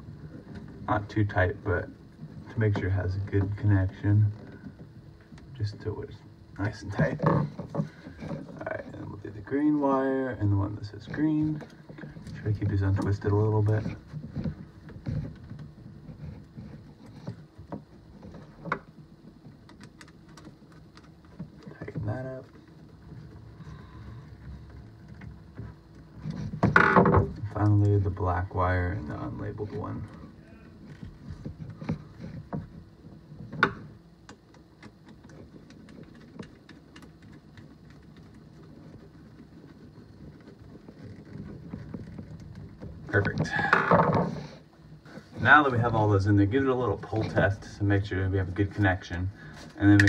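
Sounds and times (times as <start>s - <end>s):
small clicks and ticks: 11.3s - 28.1s, 29.7s - 43.4s.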